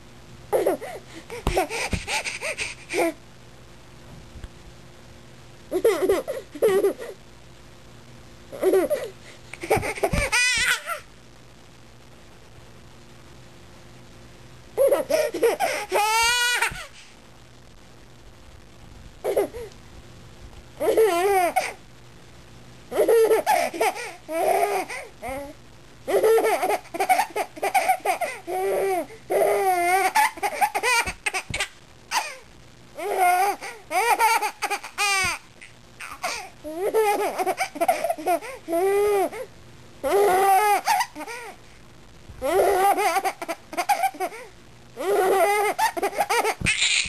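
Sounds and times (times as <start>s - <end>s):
baby laughing: 0.5s - 3.2s, 5.7s - 7.2s, 8.5s - 11.1s, 14.8s - 16.9s, 20.8s - 21.8s, 22.9s - 25.0s, 26.1s - 32.4s, 33.0s - 39.4s, 40.0s - 41.5s, 42.4s - 44.4s, 45.0s - 47.0s
baby squealing: 46.4s - 47.0s.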